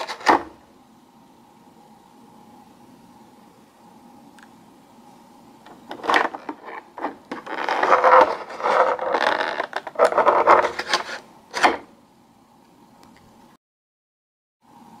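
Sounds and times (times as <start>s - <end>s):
plastic tray crackling and scraping: 0.0s - 0.6s, 5.7s - 11.9s.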